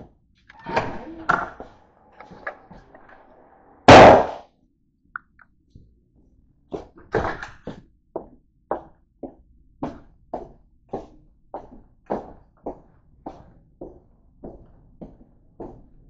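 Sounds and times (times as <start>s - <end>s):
loud bang: 3.8s - 4.4s
footsteps in corridor: 6.7s - 16.0s.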